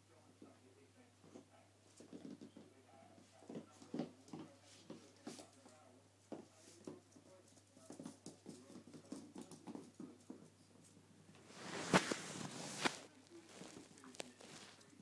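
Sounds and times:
puppy scuffling on wooden floor: 11.4s - 15.0s.

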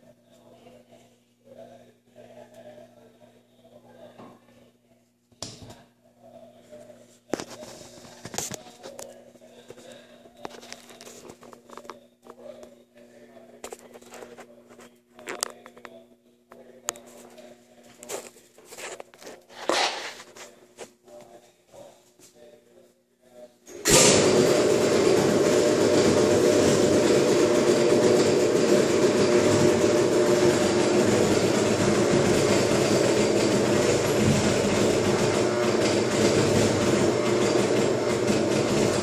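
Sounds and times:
vacuum packaging machine humming: 23.7s - 39.0s.

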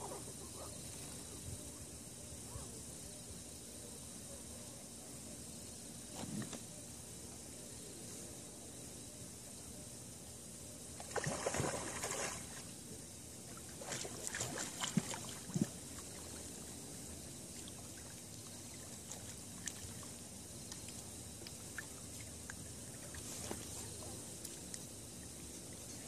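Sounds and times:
water splashing: 11.0s - 12.7s, 13.5s - 16.7s, 17.5s - 25.4s.

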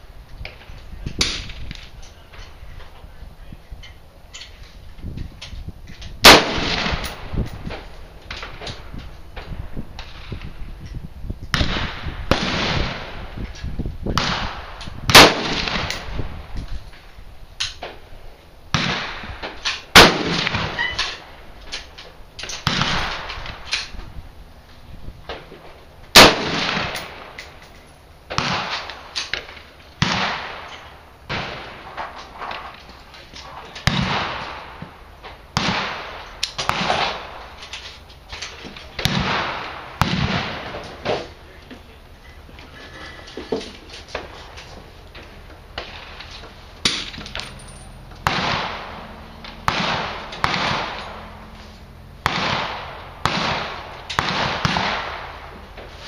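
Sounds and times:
loud close gunshots: 6.2s - 7.4s, 11.5s - 13.4s, 14.2s - 16.3s, 18.7s - 21.3s, 22.6s - 23.7s, 26.1s - 27.4s, 28.3s - 29.4s, 30.0s - 32.8s, 33.8s - 34.8s, 35.6s - 37.4s, 39.0s - 41.2s, 48.2s - 51.5s, 52.2s - 55.5s
echoing rifle shots: 6.2s - 8.8s, 11.5s - 13.4s, 14.2s - 16.5s, 18.7s - 21.4s, 22.5s - 23.9s, 26.1s - 27.6s, 28.3s - 32.8s, 33.8s - 37.5s, 39.0s - 41.2s, 46.8s - 51.6s, 52.2s - 55.6s.

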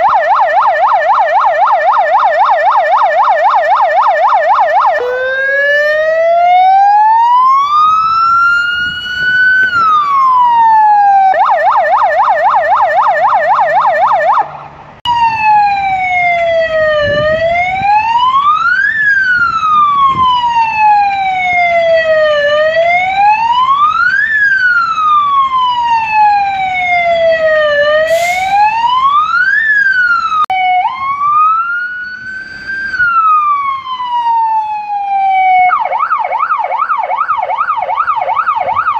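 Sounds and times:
fast siren warble: 0.0s - 38.9s
siren wailing: 0.0s - 38.9s.

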